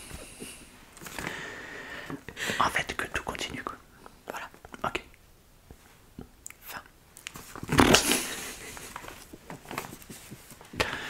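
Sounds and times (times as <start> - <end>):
person laughing: 8.0 - 9.2.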